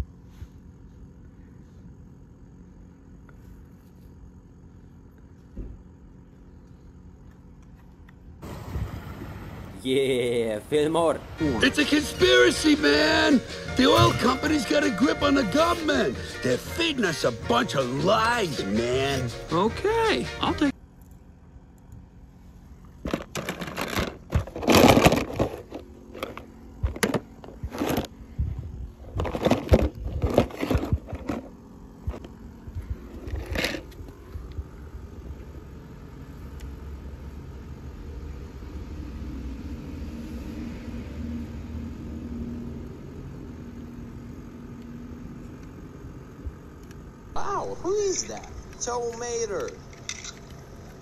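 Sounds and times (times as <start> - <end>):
low steady hum: 0.0 - 51.0
toy cars clattering: 23.0 - 28.1.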